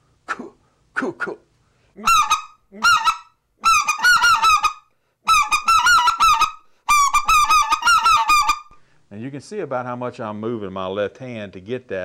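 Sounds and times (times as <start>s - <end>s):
goose call squealing clucks: 2.0s - 8.7s.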